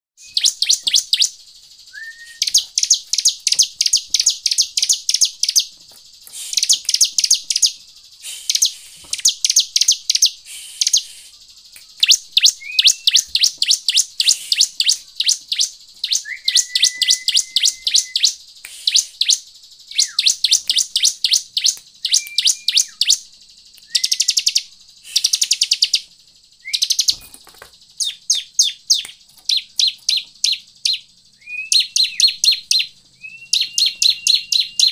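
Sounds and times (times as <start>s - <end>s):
bird calling in sharp high chips: 0.2s - 34.9s
low whistled bird note: 1.9s - 2.6s, 16.2s - 20.3s.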